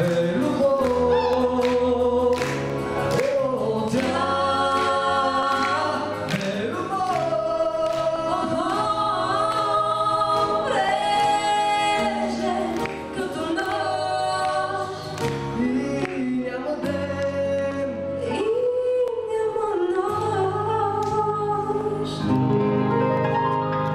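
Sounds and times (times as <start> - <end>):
man and woman singing duet: 0.0 - 22.4
instrumental accompaniment: 0.0 - 23.9.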